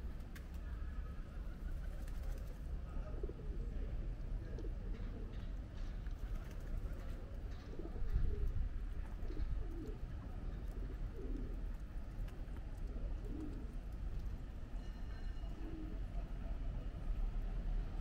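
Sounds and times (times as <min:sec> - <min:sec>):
pigeons cooing: 0:07.5 - 0:11.7, 0:12.8 - 0:13.9.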